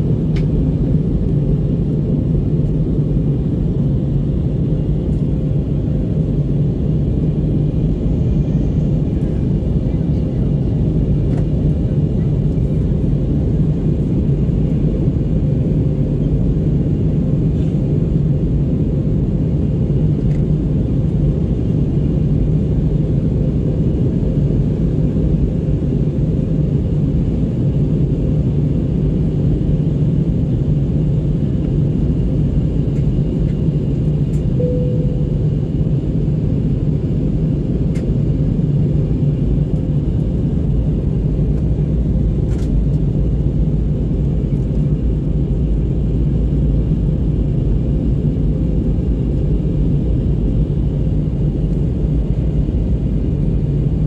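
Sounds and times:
airliner cabin engine rumble: 0:00.0 - 0:54.0
faint steady hum: 0:31.7 - 0:38.1.

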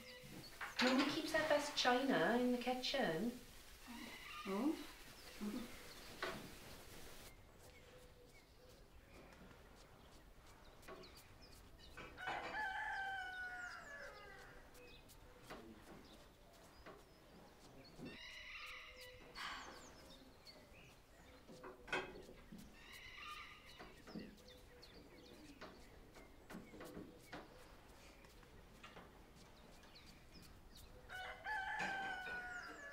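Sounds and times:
rooster crowing: 0:12.2 - 0:14.6, 0:31.1 - 0:32.9.

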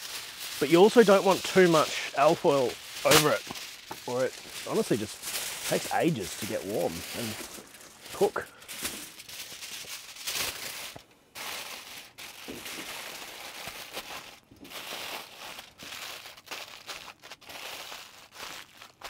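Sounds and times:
aluminium foil crinkling: 0:00.0 - 0:19.0.

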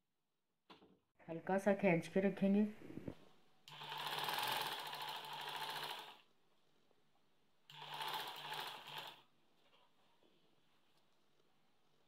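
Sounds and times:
sewing machine stitching: 0:03.7 - 0:06.2, 0:07.7 - 0:09.2.

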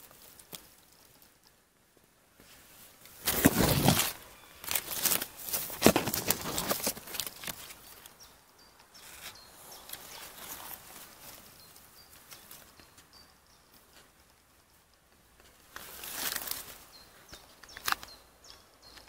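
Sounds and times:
rustling of dry leaves and grass: 0:00.0 - 0:19.0.

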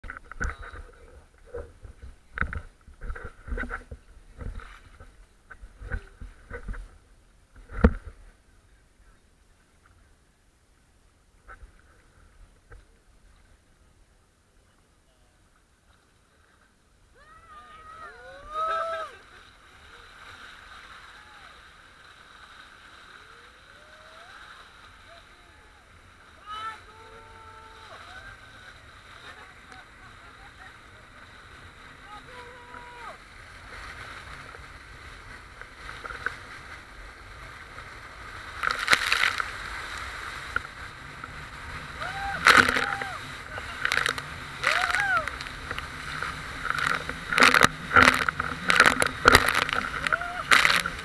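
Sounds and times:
rush of water: 0:00.0 - 0:51.0
person whooping: 0:17.2 - 0:19.2, 0:23.7 - 0:24.5, 0:26.4 - 0:28.4, 0:42.0 - 0:43.4, 0:44.6 - 0:45.4, 0:50.0 - 0:50.9.

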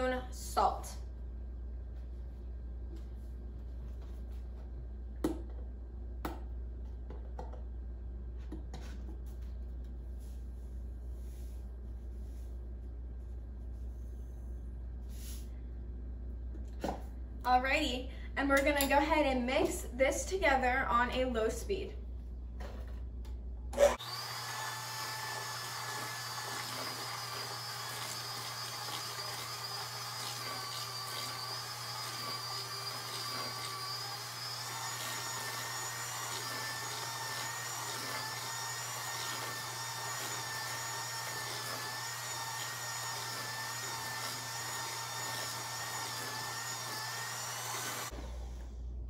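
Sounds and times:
electric mixer beaters whirring: 0:23.8 - 0:48.7.

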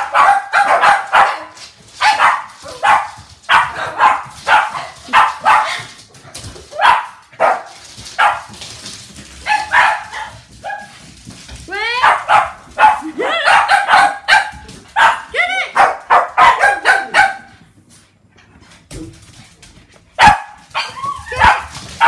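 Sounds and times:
small dogs barking: 0:00.0 - 0:05.9, 0:06.8 - 0:08.5, 0:09.4 - 0:10.9, 0:12.0 - 0:17.6, 0:20.2 - 0:21.8.

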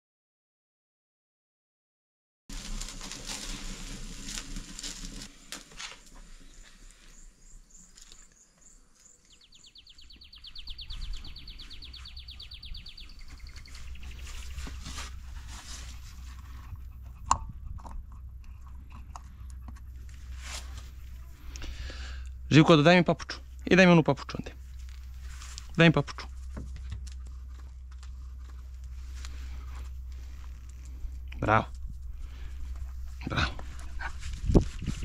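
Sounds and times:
wood fire crackling: 0:02.5 - 0:08.4, 0:18.6 - 0:35.0
insect chirps: 0:06.0 - 0:14.8
wind on microphone: 0:12.3 - 0:19.0, 0:31.0 - 0:35.0.

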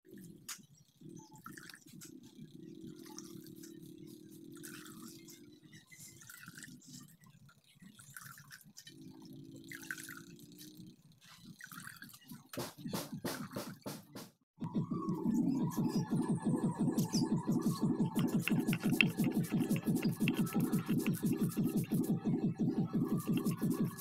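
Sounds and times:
water dripping and splashing: 0:18.2 - 0:21.4.

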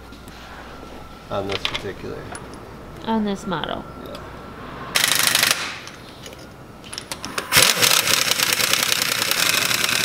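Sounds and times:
air impact wrench hammering: 0:05.0 - 0:06.0, 0:06.9 - 0:10.0.

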